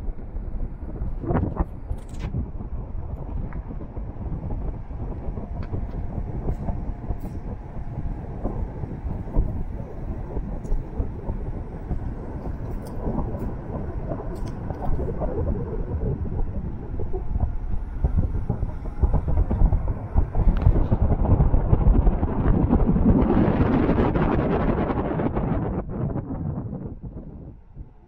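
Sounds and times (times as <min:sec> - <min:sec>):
road noise: 0:00.0 - 0:22.2
car driving rumble: 0:00.0 - 0:23.4
wind on microphone: 0:00.0 - 0:28.0.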